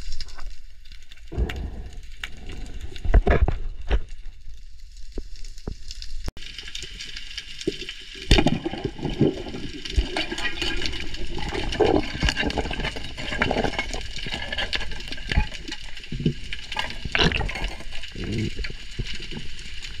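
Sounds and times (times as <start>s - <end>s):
underwater water rushing: 6.4s - 20.0s.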